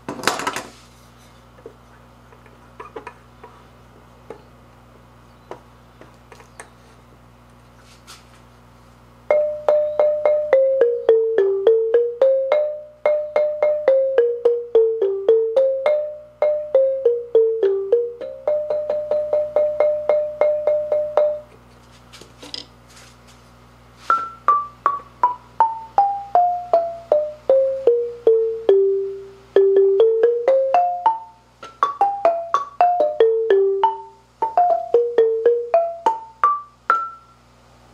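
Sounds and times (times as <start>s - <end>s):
marimba notes: 9.3s - 21.5s, 24.1s - 37.4s.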